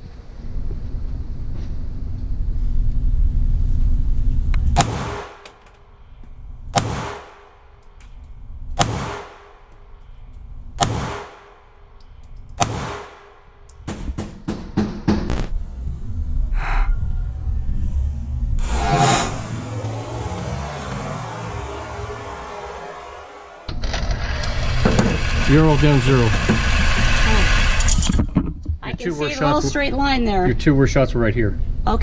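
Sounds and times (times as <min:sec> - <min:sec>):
steady low rumble: 0:00.0 - 0:14.2, 0:15.0 - 0:26.4, 0:28.7 - 0:32.0
rapid sharp gunshot cracks: 0:04.8 - 0:05.5, 0:06.7 - 0:07.5, 0:08.8 - 0:09.6, 0:10.8 - 0:11.6, 0:12.6 - 0:13.4.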